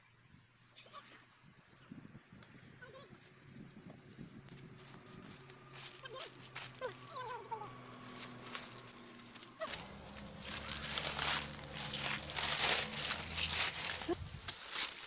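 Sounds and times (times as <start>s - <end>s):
footsteps crunching through dry leaves: 3.2s - 15.0s.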